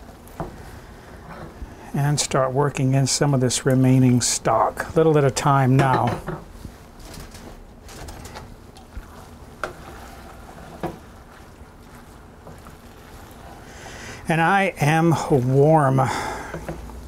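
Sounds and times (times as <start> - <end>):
spoon stirring thick risotto: 7.9 - 17.0.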